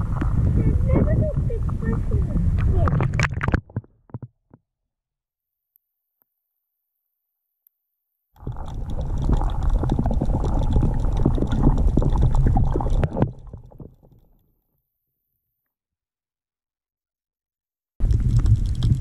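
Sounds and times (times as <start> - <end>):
muffled underwater rumbling: 0.0 - 4.6, 8.4 - 14.4, 18.0 - 19.0.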